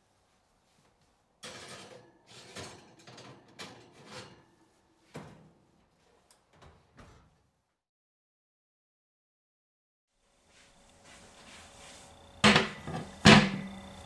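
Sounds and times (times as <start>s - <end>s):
skillet clattering on metal rack: 1.4s - 4.5s, 12.4s - 13.7s
oven door closing: 12.4s - 14.0s.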